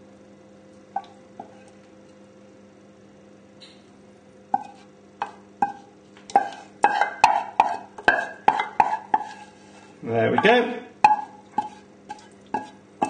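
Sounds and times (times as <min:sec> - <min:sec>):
spoon knocking on saucepan: 0:04.6 - 0:09.4, 0:10.3 - 0:12.8.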